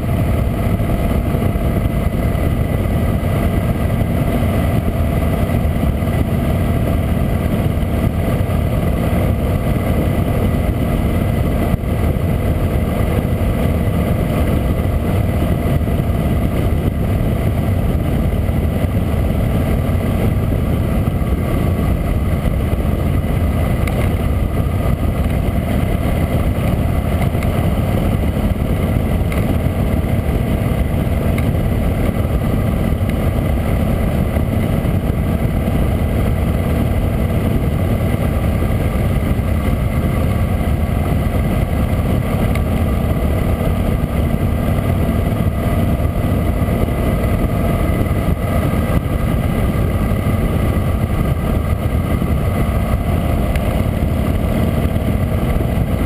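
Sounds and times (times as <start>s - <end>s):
motorcycle engine running: 0.0s - 56.0s
wind rushing over microphone: 0.0s - 56.0s.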